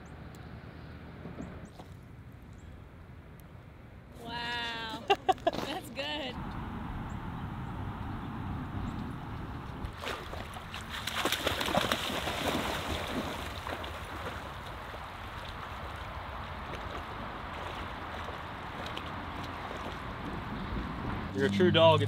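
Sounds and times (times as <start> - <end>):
dog splashing through water: 9.9 - 20.3.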